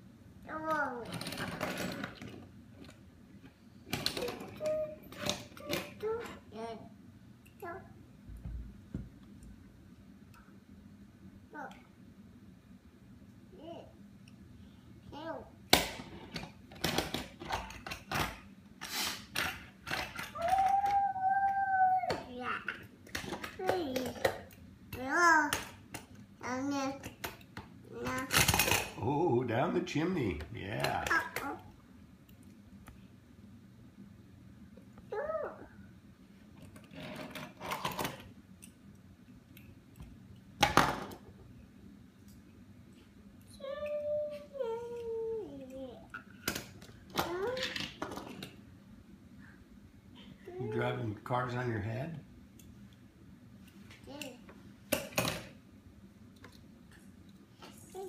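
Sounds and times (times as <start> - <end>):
toy car rattling on wooden table: 1.0 - 2.4, 36.8 - 38.3
toddler vocal sounds: 20.3 - 22.8, 35.1 - 35.8, 43.6 - 46.1, 47.2 - 47.8.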